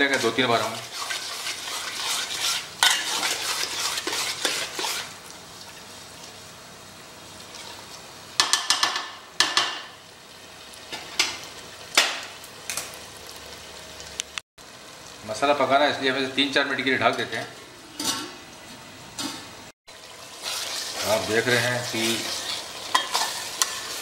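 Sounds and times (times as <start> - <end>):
spatula scraping a pot: 0.0 - 5.2, 20.4 - 24.0
masala sizzling: 0.0 - 24.0.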